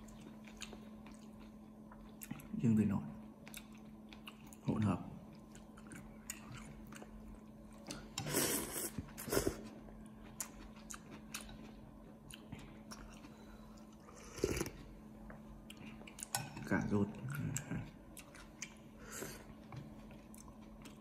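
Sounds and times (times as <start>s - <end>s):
person chewing noodles: 0.0s - 2.6s, 3.2s - 16.4s, 17.1s - 21.0s.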